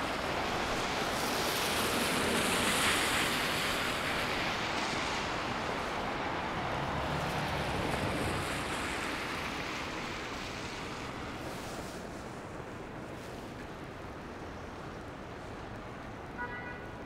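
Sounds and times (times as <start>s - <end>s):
vehicle passing: 6.4s - 9.8s.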